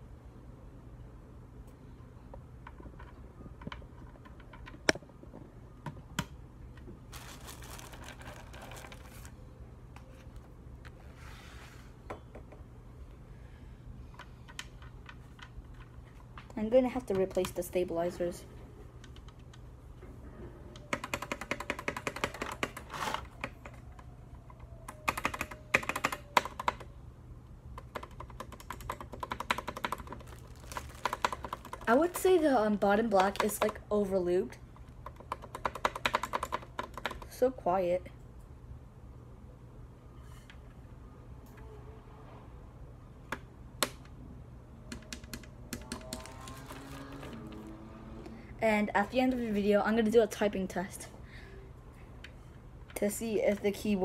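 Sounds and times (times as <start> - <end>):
rustling: 7.1 - 9.4, 30.0 - 32.2.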